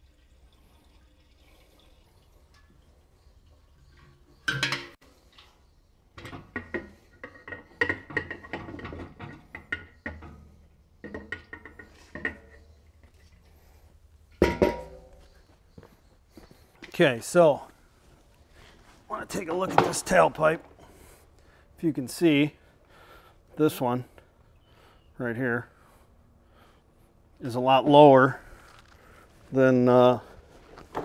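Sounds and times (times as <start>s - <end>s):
gas can clanking: 3.8s - 13.6s, 14.3s - 15.3s, 19.1s - 21.2s.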